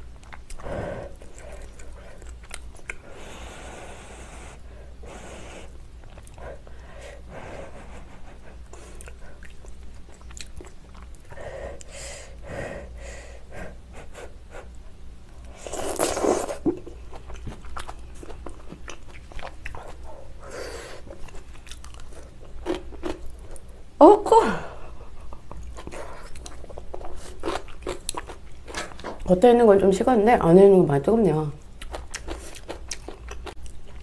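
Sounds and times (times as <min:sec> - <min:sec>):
wet chewing mouth sounds: 0:00.0 - 0:03.1, 0:08.2 - 0:11.9, 0:15.7 - 0:20.3, 0:20.9 - 0:23.7, 0:25.2 - 0:29.3, 0:31.6 - 0:34.0.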